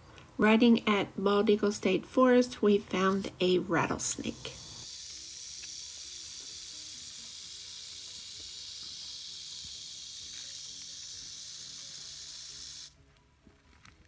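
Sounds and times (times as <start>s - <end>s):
rattlesnake rattling: 4.0s - 12.9s.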